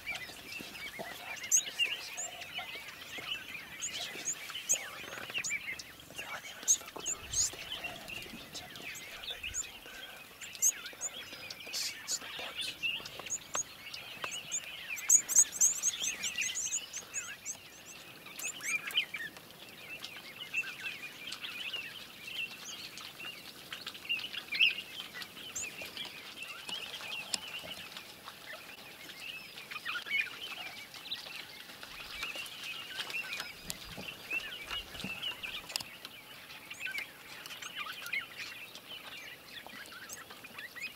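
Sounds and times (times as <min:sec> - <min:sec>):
rapid high-pitched bird chirps: 0:00.0 - 0:19.2
wild birds chirping and calling: 0:00.0 - 0:40.9.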